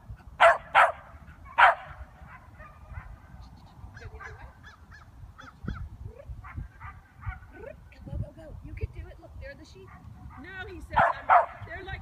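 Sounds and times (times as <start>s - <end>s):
puppy barking: 0.4s - 3.2s, 4.0s - 4.8s, 6.4s - 7.5s, 11.0s - 11.6s.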